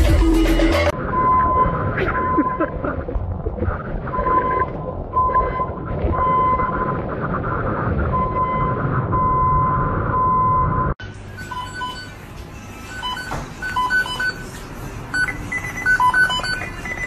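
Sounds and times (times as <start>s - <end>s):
storm wind: 0.9s - 11.0s.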